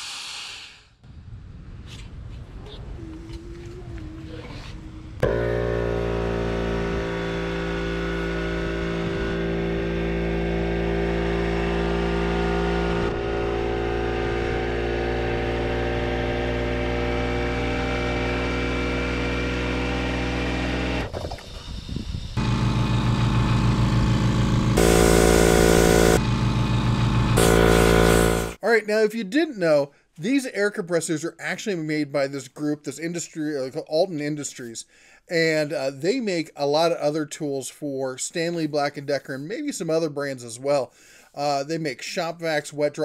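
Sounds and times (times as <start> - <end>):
electric air compressor humming: 5.2 - 16.0, 16.6 - 28.6
air compressor rapid pulsing: 21.0 - 28.6.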